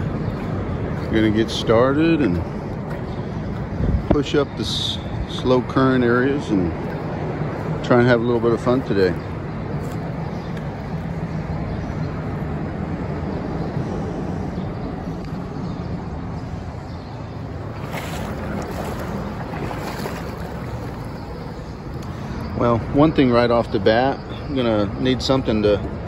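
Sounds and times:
river water flowing: 0.0 - 11.4, 12.8 - 23.6
wind on microphone: 2.5 - 5.8, 9.2 - 22.9.

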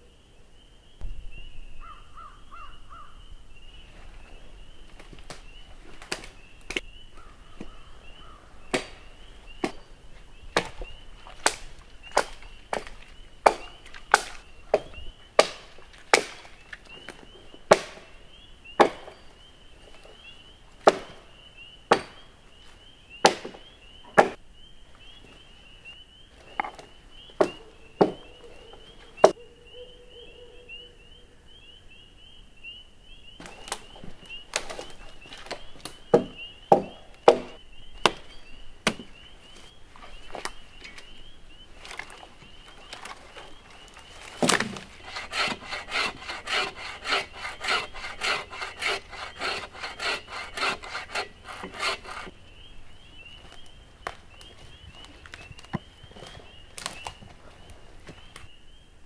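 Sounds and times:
axe chopping wood: 8.7 - 9.0, 10.6 - 10.8, 11.4 - 16.5, 17.7 - 18.1, 18.8 - 19.2, 20.8 - 21.2, 21.9 - 22.2, 23.2 - 23.6, 24.2 - 24.4, 36.1 - 38.2, 38.8 - 39.1.

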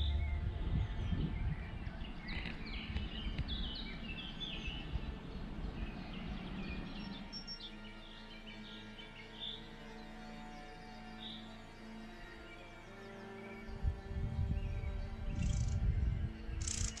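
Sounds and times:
low rumble: 0.0 - 7.3
songbirds chirping: 0.0 - 17.0.

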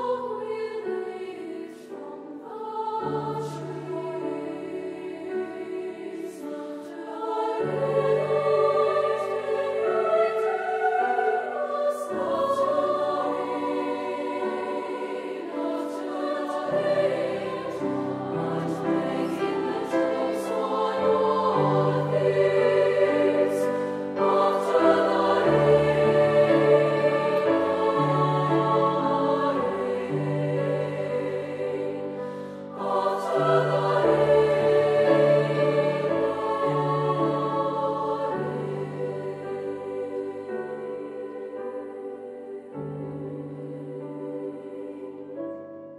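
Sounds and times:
grand piano: 0.0 - 45.9
treble choir singing: 0.0 - 45.9.

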